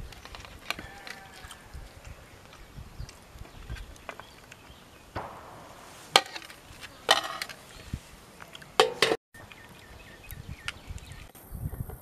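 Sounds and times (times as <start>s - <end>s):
ladle clattering on metal plates: 8.8s - 9.2s.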